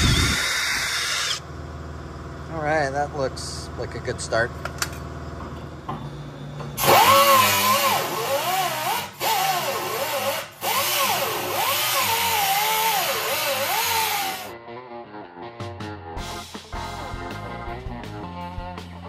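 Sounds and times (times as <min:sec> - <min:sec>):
power drill boring through steel: 0:00.0 - 0:01.4, 0:06.8 - 0:14.5.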